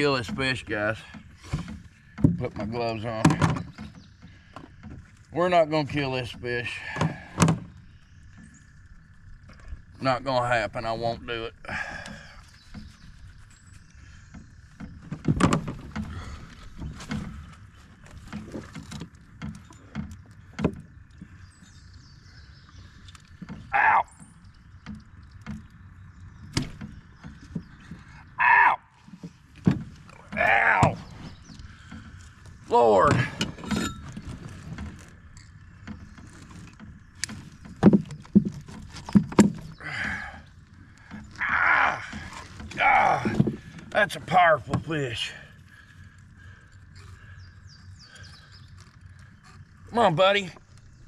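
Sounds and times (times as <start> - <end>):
fish thumping against boat: 14.8 - 21.0, 32.9 - 35.0.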